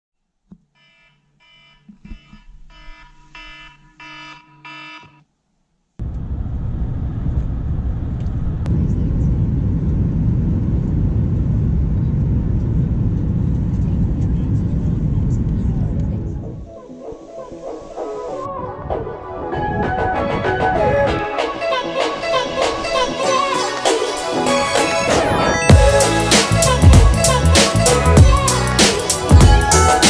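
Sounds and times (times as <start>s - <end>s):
electronic alarm beeping: 0.8s - 5.2s
vehicle travel rumble: 6.0s - 16.7s.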